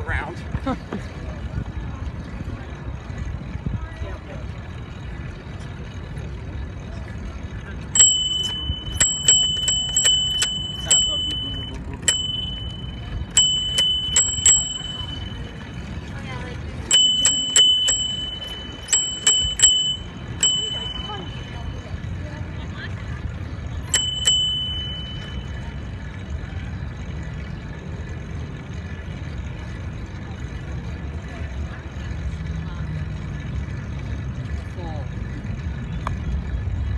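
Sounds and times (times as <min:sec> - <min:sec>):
wind and road noise: 0:00.0 - 0:25.6, 0:26.3 - 0:36.9
bicycle bell ringing: 0:07.8 - 0:22.4, 0:23.8 - 0:26.2.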